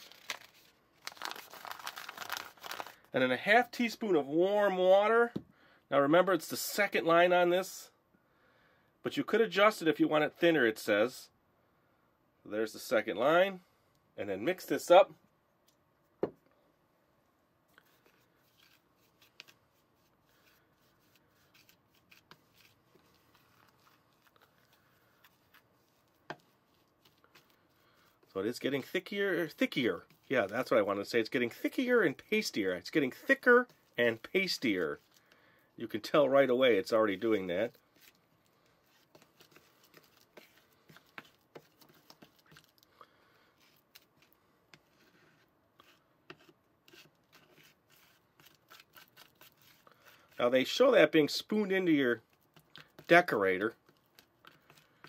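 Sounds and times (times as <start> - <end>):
plastic spoon stirring powder in bowl: 17.8 - 55.0.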